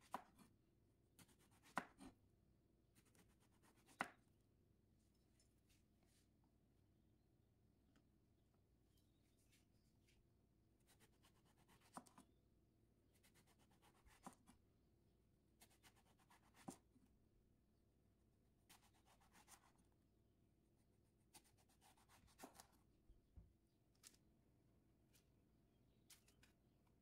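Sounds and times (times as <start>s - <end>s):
knife slicing eggplant: 10.8s - 12.3s, 13.2s - 14.5s, 18.7s - 19.8s, 21.3s - 22.8s.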